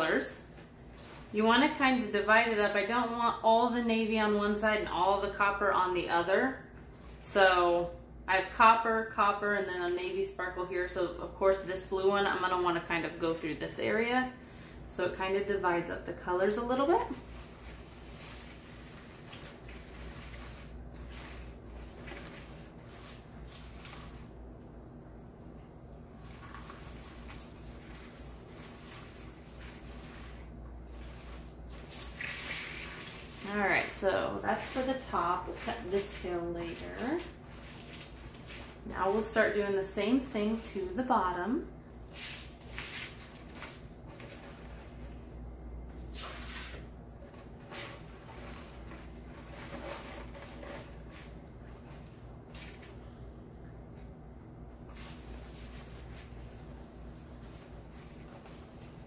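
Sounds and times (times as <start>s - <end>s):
mesh and ribbon rustling: 0.0s - 3.2s, 16.2s - 24.6s, 25.3s - 41.1s, 41.9s - 45.3s, 46.0s - 53.0s, 54.8s - 59.0s
ribbon and mesh rustling: 0.1s - 3.1s, 25.5s - 41.1s.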